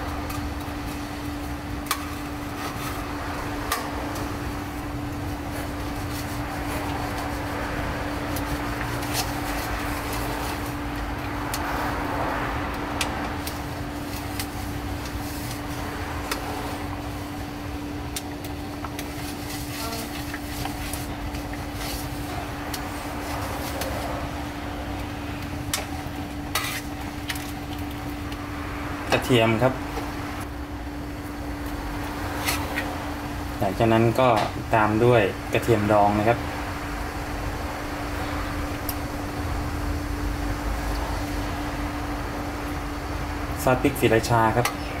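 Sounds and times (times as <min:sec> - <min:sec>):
ladle scraping pan: 0:25.7 - 0:27.5.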